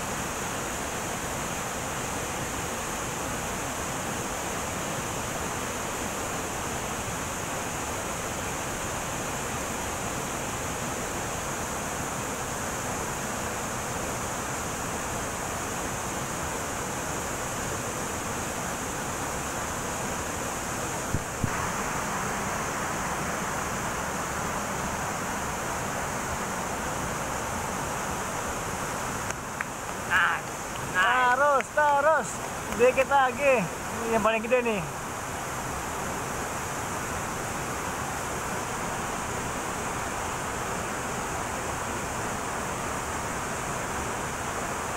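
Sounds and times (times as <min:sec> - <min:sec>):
waterfall rushing: 0:00.0 - 0:44.9.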